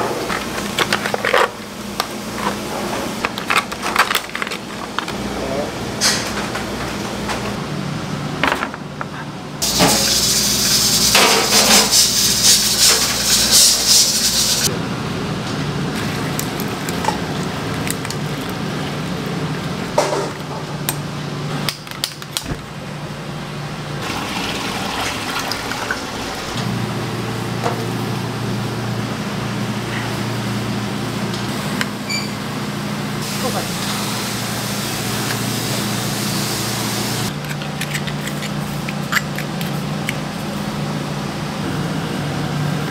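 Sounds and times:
running water gushing: 24.0s - 26.6s.

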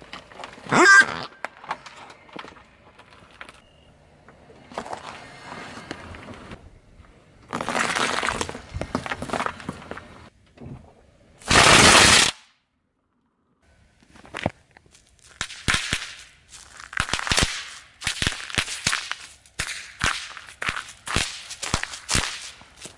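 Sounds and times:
car tyre rolling over foam: 4.3s - 11.0s
loud burst: 11.4s - 12.4s.

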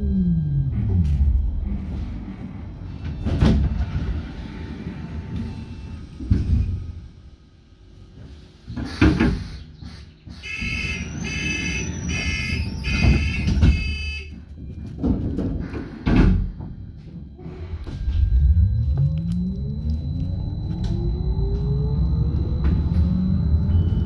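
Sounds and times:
bus door warning beeps: 10.4s - 24.0s
doors clattering shut: 12.1s - 14.2s
bus motor pulling away: 17.5s - 24.0s.

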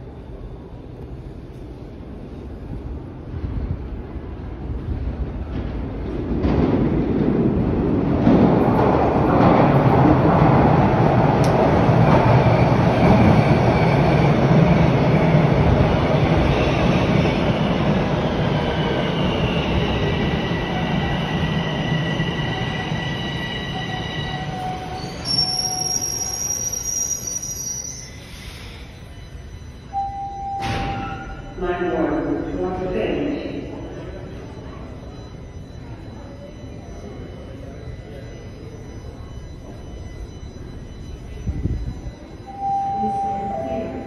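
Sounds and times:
subway train wheels rumbling: 0.0s - 44.0s
high-pitched wheel squeal: 24.8s - 29.0s.

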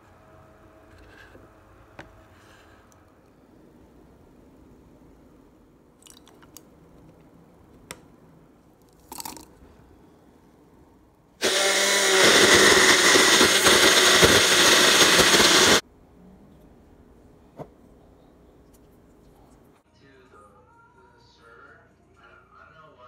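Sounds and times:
blender crushing frozen fruit: 11.4s - 15.8s.

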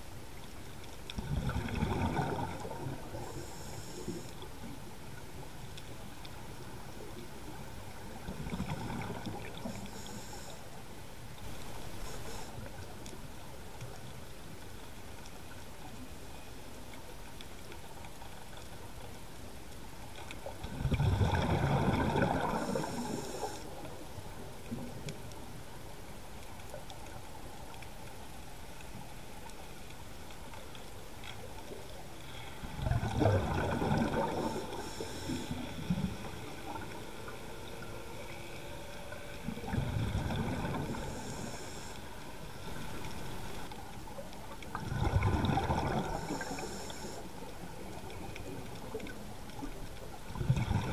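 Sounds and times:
underwater breath bubbles gurgling: 1.2s - 4.8s, 6.9s - 10.7s, 20.5s - 25.2s, 31.8s - 50.9s
steady hiss: 2.6s - 8.3s, 9.3s - 16.9s, 22.4s - 32.9s, 33.9s - 44.6s, 46.0s - 49.7s.

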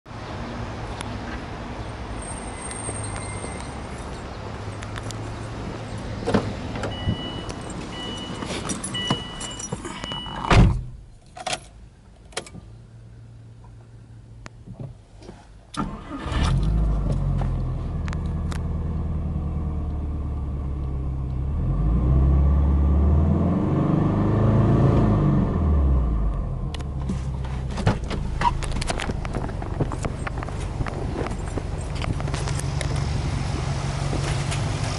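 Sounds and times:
car engine starting and revving: 15.8s - 34.9s.

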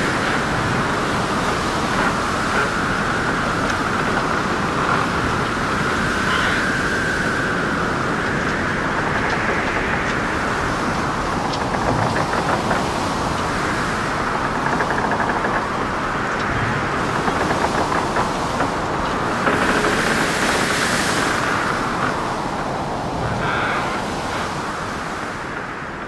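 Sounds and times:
faint clicks: 14.3s - 22.2s.

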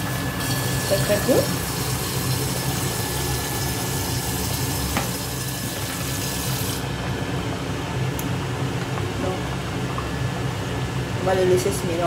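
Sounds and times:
water pouring into a pan: 0.0s - 6.8s
sauce bubbling at a boil: 0.0s - 6.9s.

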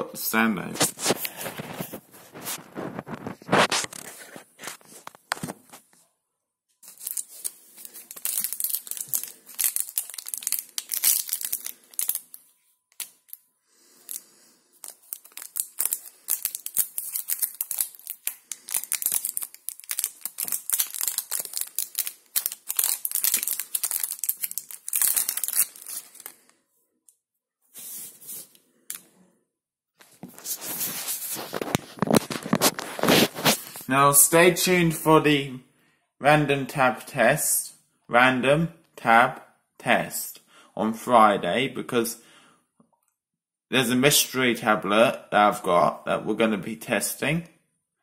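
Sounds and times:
plastic wrapper tearing and crinkling: 0.8s - 5.6s, 6.8s - 13.4s, 14.0s - 26.5s, 30.4s - 33.9s.

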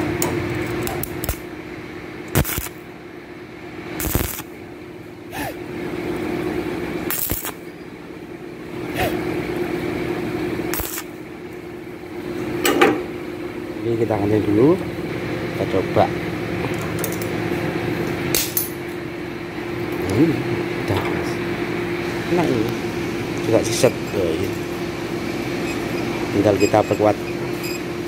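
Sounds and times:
steady hum: 0.0s - 28.0s
arc welding crackle: 0.1s - 1.6s, 2.2s - 2.9s, 4.0s - 4.6s, 7.0s - 7.7s, 10.7s - 11.2s
sharp clicks of arc striking: 0.2s - 1.5s, 2.3s - 2.8s, 4.0s - 4.5s, 7.1s - 7.6s, 10.7s - 11.1s, 18.3s - 18.8s.

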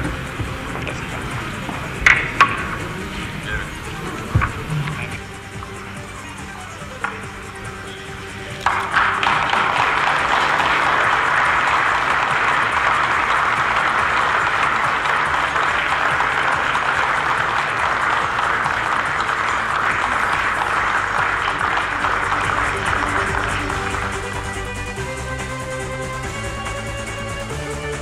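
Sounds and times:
crowd applauding: 0.0s - 28.0s.

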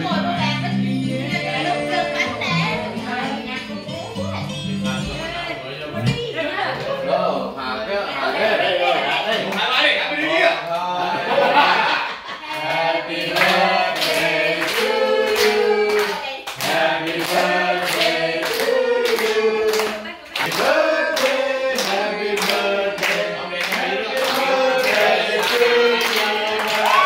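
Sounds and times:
group of people singing: 0.0s - 3.9s, 11.2s - 27.0s
people clapping along: 12.4s - 27.0s.

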